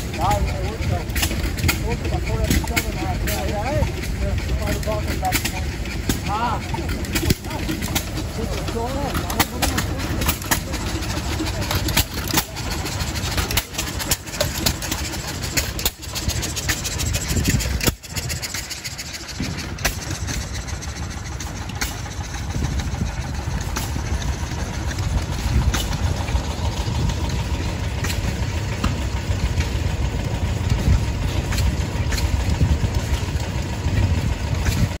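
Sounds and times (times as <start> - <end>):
sharp exhaust pops: 0.0 - 35.0
stationary engines chugging: 0.0 - 35.0.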